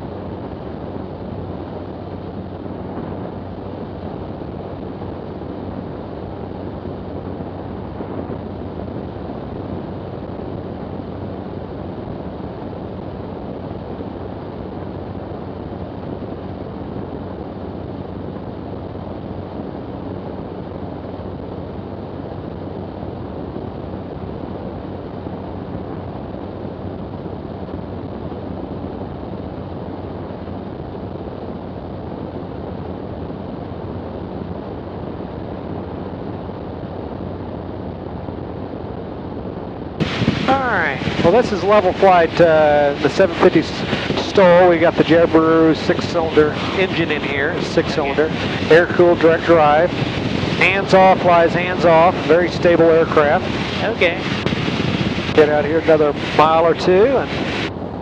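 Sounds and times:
light aircraft engine and propeller drone: 0.0s - 58.0s
rushing airflow: 39.9s - 58.0s.

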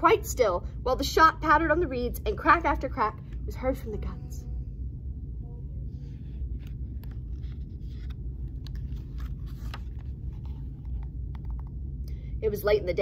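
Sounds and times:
low background hum: 0.0s - 13.0s
book pages rustling: 6.1s - 11.8s.

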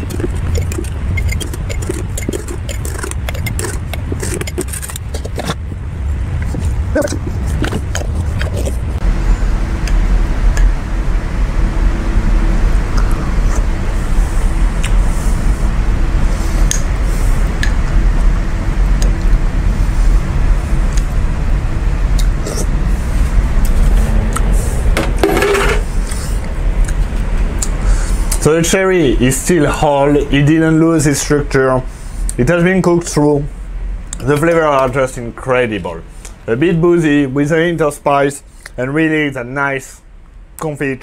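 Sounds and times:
low rumble: 0.0s - 29.4s.

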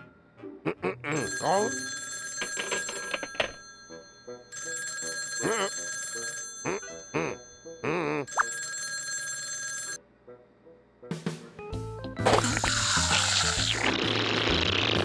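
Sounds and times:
cartoon telephone bell ringing: 1.1s - 10.0s.

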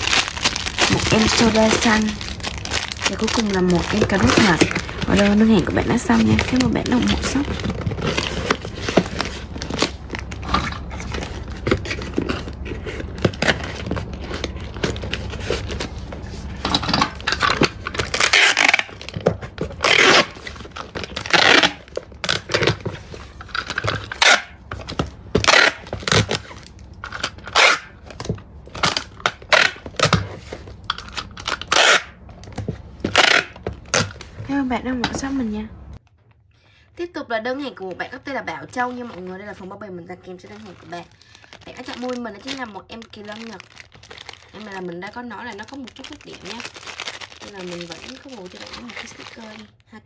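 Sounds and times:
packing tape pulled from dispenser: 18.1s - 19.0s, 27.4s - 27.9s, 31.4s - 32.2s.

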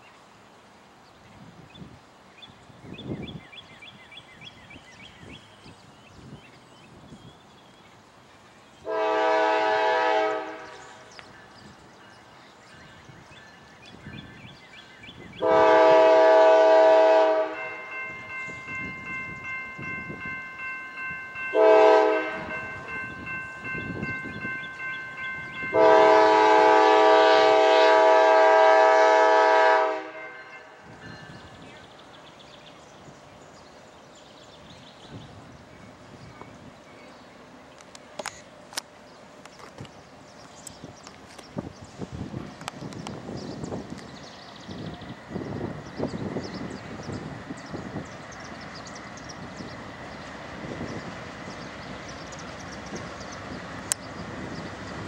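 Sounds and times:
locomotive air horn blasts: 8.8s - 11.1s, 15.4s - 18.1s, 21.5s - 22.8s, 25.7s - 30.8s
crossing bell ringing: 17.2s - 26.6s, 30.1s - 31.7s.

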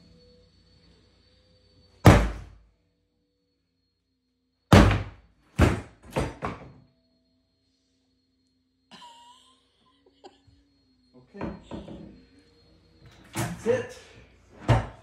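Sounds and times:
sledgehammer thuds on wood: 2.0s - 2.5s, 4.7s - 6.7s.

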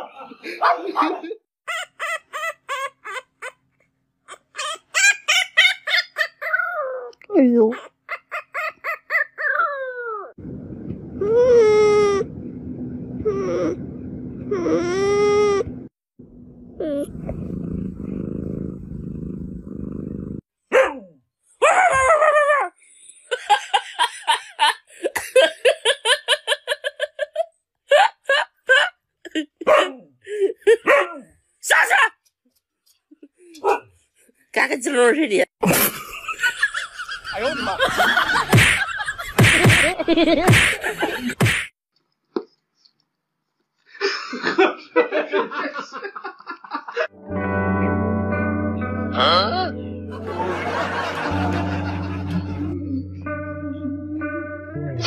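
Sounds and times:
person laughing in bursts: 0.0s - 3.2s, 21.8s - 30.9s, 35.6s - 41.7s, 44.0s - 47.1s, 50.1s - 52.7s
sharp slaps: 38.5s - 38.8s, 39.4s - 40.8s, 41.4s - 41.7s.

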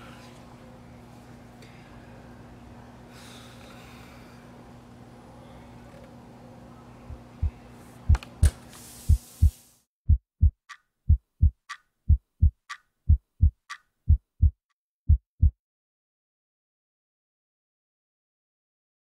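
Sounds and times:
steady background hum: 0.0s - 9.6s
heartbeat thumps: 7.1s - 8.2s, 9.1s - 15.6s.

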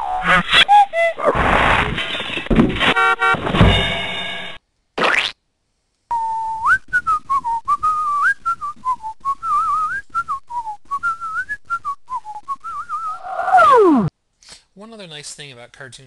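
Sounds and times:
person whistling warbling tune: 6.1s - 14.1s.

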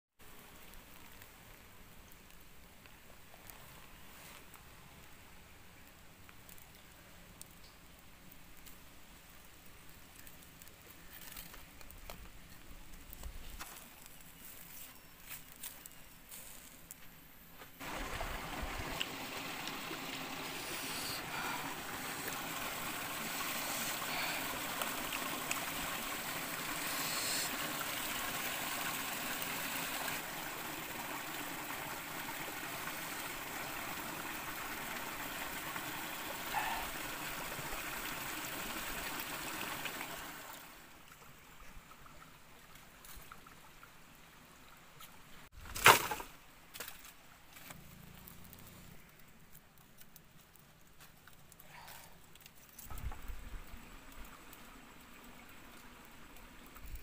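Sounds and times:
stream water flowing: 17.8s - 45.5s, 52.3s - 57.0s.

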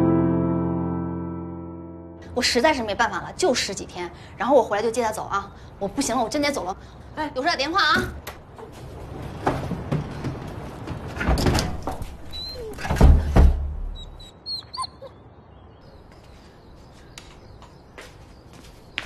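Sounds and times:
knocks and bumps: 9.0s - 12.2s
dog whining: 12.3s - 12.9s, 14.0s - 15.2s
heavy door thud: 12.8s - 13.9s.

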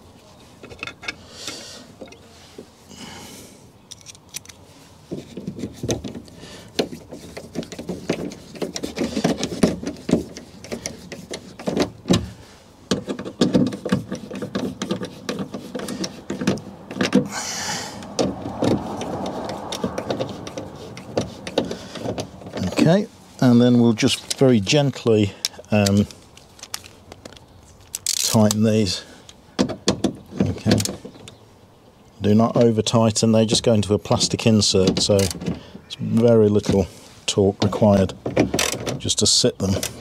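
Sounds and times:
nut driver and screws clicking: 3.9s - 4.6s.

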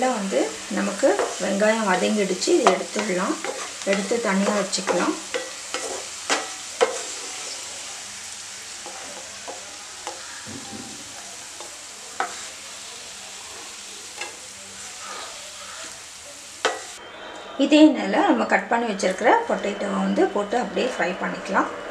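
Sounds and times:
onions sizzling in hot oil: 0.0s - 17.0s
wooden spatula scraping a pan: 0.8s - 7.6s, 13.5s - 16.0s.

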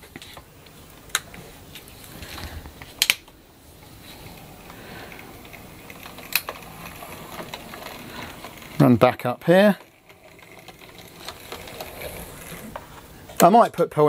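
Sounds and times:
model train motor whirring: 4.0s - 13.1s.

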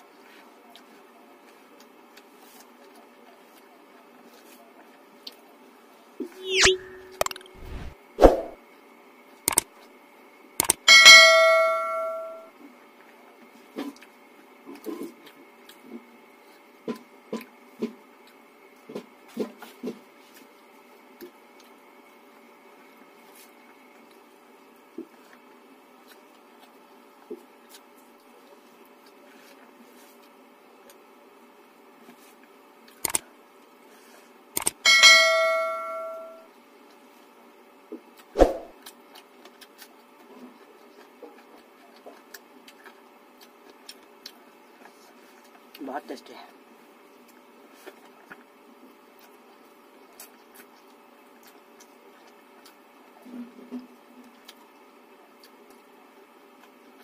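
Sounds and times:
bell-like notification chime: 10.9s - 12.4s, 34.9s - 36.4s
clicks of person eating by hand: 38.0s - 45.8s
wet eating smacks and clicks: 38.0s - 45.8s, 47.1s - 53.2s, 53.8s - 57.0s.

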